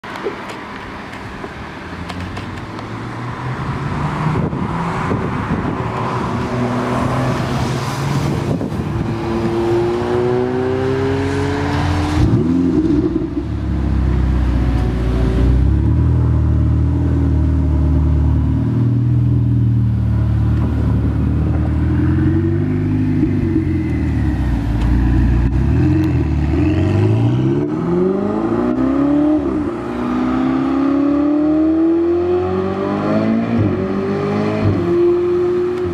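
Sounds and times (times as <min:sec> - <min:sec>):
sports car engine revving: 0:08.4 - 0:35.9.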